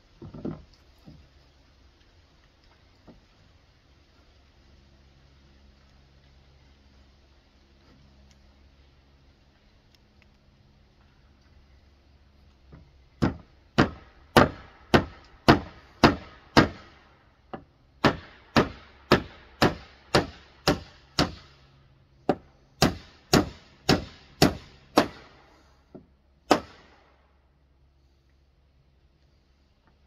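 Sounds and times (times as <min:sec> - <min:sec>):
hammer nailing wooden boards: 0:13.2 - 0:16.9, 0:17.5 - 0:21.4, 0:22.3 - 0:25.2, 0:26.5 - 0:26.8.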